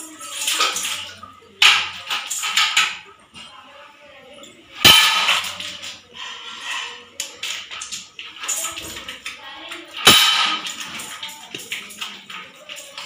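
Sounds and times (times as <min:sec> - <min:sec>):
water splashing in metal bucket: 0:00.0 - 0:03.2, 0:04.8 - 0:06.0, 0:06.9 - 0:13.0
sharp hit on bucket: 0:04.8 - 0:05.6, 0:10.0 - 0:10.8.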